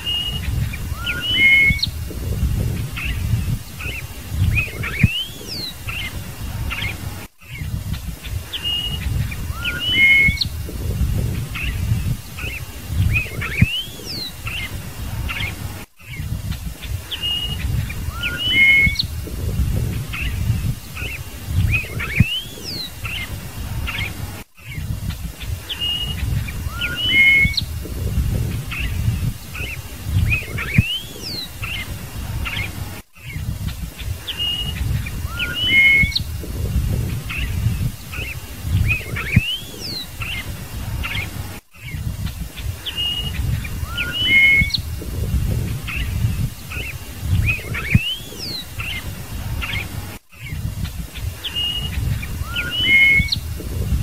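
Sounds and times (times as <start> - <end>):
bird singing whistled notes: 0.0 - 54.0
low rumble: 1.9 - 3.7, 10.5 - 12.3, 27.6 - 29.4, 36.2 - 38.0, 44.8 - 46.6.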